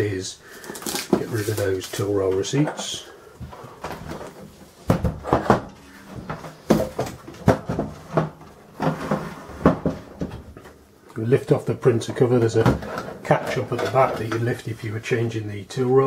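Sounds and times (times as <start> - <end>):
plastic scraping on tabletop: 8.8 - 10.2.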